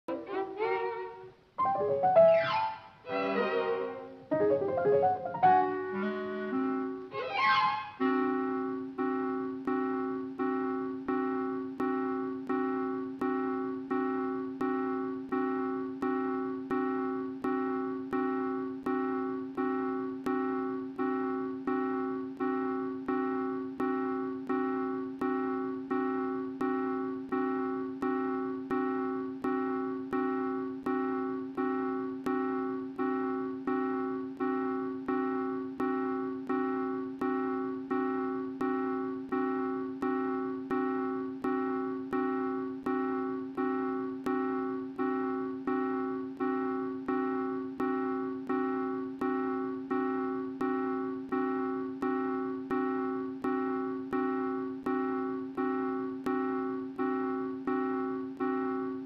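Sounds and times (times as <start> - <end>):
piano chord struck repeatedly: 1.6 - 2.8, 4.3 - 6.0.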